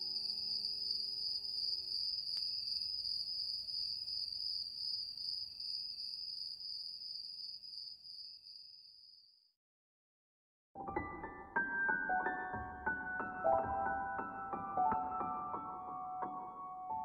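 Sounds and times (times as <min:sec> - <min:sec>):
music: 0:00.0 - 0:02.2, 0:10.8 - 0:17.0
crickets chirping: 0:00.0 - 0:09.5.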